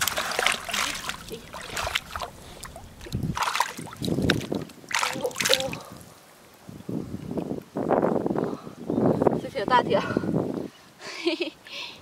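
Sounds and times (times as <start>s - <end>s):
fish splashing in water: 0.0s - 5.9s.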